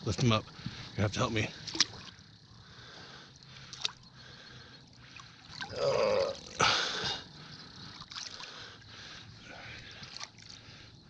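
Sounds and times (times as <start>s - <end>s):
water splashing: 1.5s - 2.2s
person grunting with effort: 5.7s - 7.0s.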